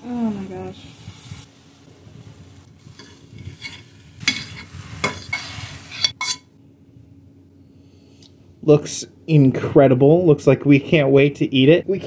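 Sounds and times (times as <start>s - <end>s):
faint sizzling: 0.0s - 6.6s
metal fork scraping a frying pan: 2.9s - 6.5s.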